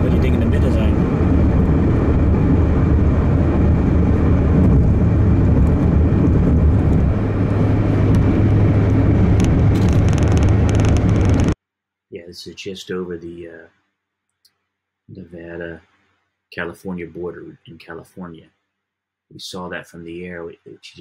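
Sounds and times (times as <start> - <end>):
car tyres and engine rumble: 0.0 - 11.6.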